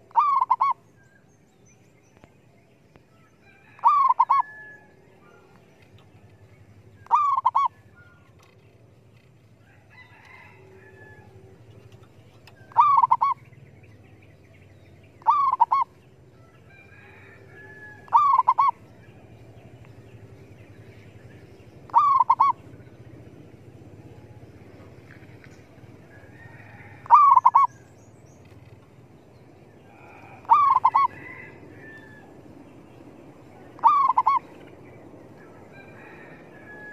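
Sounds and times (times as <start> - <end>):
dove cooing: 0.0 - 0.8, 3.7 - 5.6, 7.0 - 8.6, 12.4 - 13.5, 15.2 - 16.0, 16.7 - 18.9, 21.9 - 22.9, 26.2 - 27.8, 29.8 - 32.2, 33.7 - 34.5.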